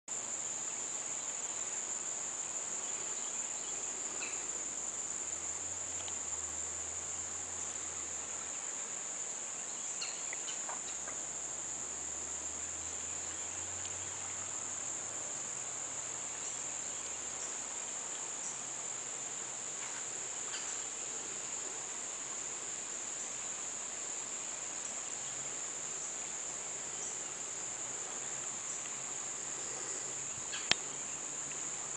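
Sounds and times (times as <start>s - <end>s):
insects trilling: 0.1s - 31.9s.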